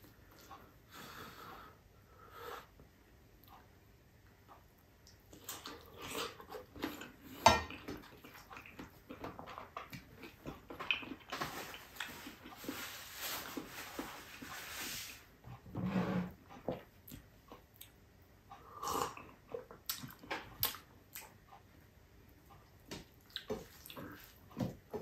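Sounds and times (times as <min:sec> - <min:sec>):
man chewing and smacking: 0:04.5 - 0:12.8, 0:16.6 - 0:18.0, 0:19.0 - 0:21.7, 0:22.4 - 0:25.0.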